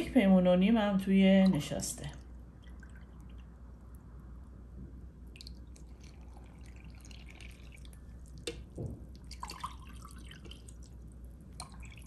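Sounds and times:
water pouring into a bowl: 1.5s - 3.7s, 5.3s - 12.0s.

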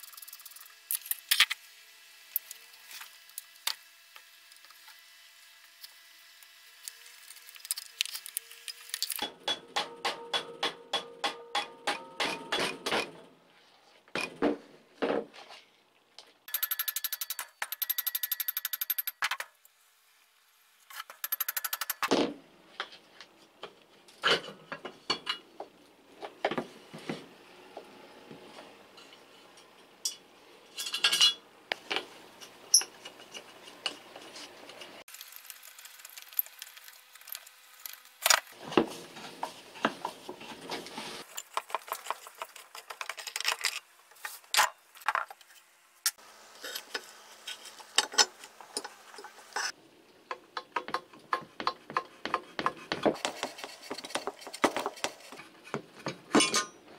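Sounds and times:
metal parts clinking and clicking: 16.5s - 19.4s, 20.9s - 22.1s, 35.2s - 38.5s.

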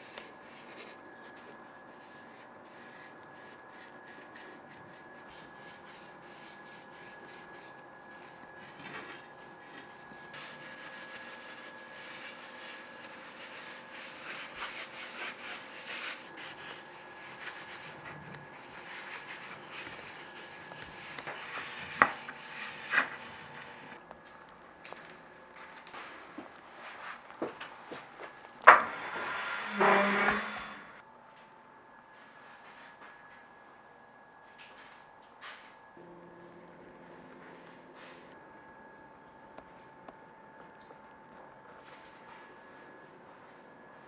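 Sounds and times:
faint steady hum: 0.0s - 44.0s
hand rubbing wood: 9.4s - 24.0s, 28.7s - 31.0s.

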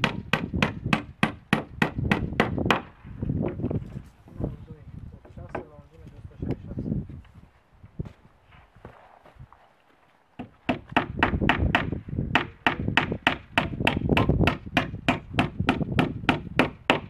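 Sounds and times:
hammer driving nails into wood: 0.0s - 2.9s, 10.4s - 17.0s.

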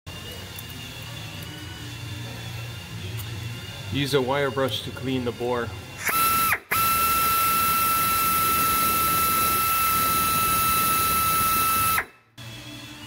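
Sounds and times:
air rotary tool whining: 5.9s - 13.0s.

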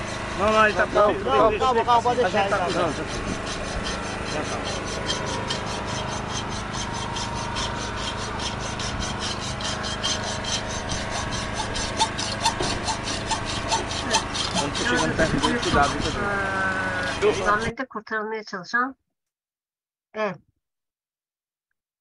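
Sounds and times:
hacksaw sawing metal: 0.0s - 17.7s.

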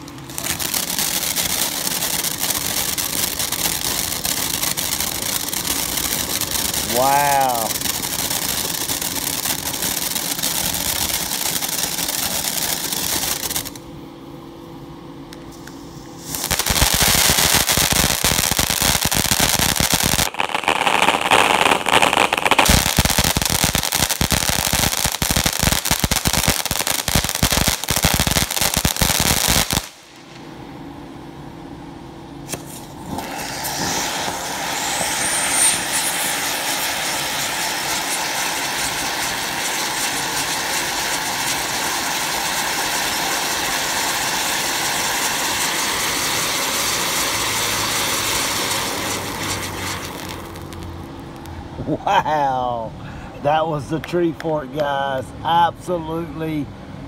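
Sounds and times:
firework sparks hissing: 0.0s - 13.8s, 15.5s - 30.4s, 32.4s - 51.5s
loud dense crackling: 0.4s - 13.8s, 16.4s - 30.0s, 33.2s - 50.9s.

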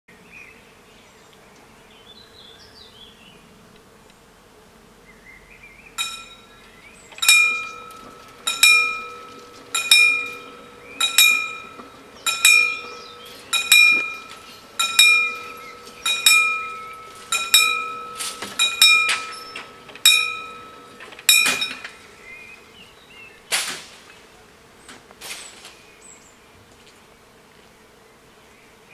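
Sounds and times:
level crossing warning bells: 6.0s - 22.1s
loud clunk: 7.1s - 22.1s, 23.5s - 24.2s.

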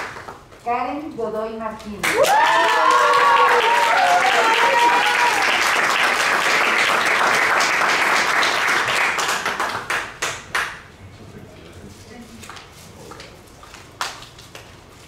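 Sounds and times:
audience applauding: 2.1s - 10.8s
voices cheering: 2.2s - 5.8s.

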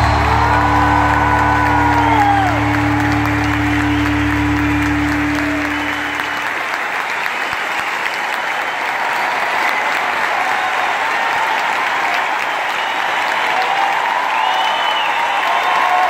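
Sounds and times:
held music chord: 0.0s - 6.7s
audience applauding: 0.0s - 16.0s.

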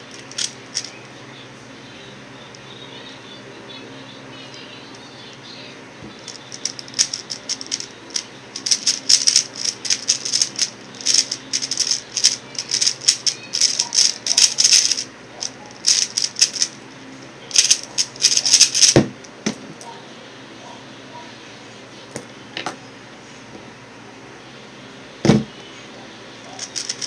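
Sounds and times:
puzzle cube clicking turns: 0.1s - 1.0s, 6.2s - 16.8s, 17.5s - 19.0s, 26.6s - 27.0s.

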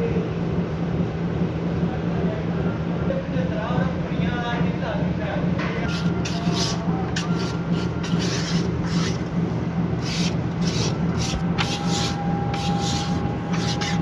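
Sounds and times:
hand rubbing ceramic surface: 5.9s - 9.2s, 10.0s - 14.0s.

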